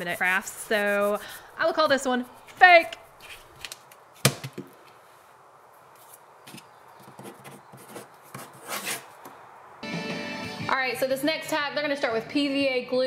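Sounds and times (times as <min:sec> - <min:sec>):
pencil scratching on paper: 0:00.0 - 0:02.6, 0:07.0 - 0:09.1.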